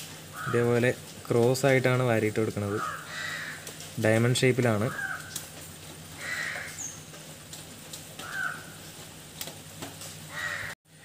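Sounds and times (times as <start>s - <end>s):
crow cawing: 0.3s - 0.7s, 2.6s - 3.9s, 4.7s - 5.5s, 6.1s - 7.1s, 8.2s - 8.9s, 10.3s - 10.8s.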